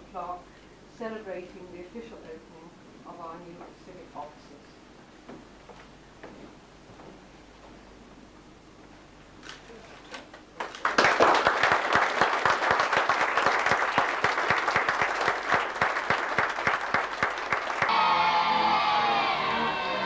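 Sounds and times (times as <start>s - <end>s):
audience applause: 10.6s - 18.2s.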